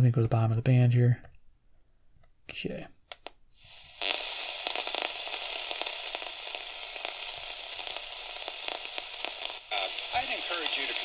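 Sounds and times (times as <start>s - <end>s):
radio static hiss and crackle: 3.6s - 11.0s
radio click: 4.0s - 11.0s.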